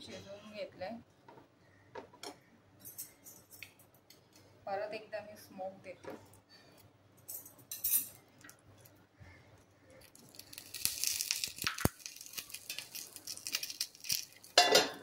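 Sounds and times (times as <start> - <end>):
chicken sizzling in a frying pan: 10.0 - 15.0.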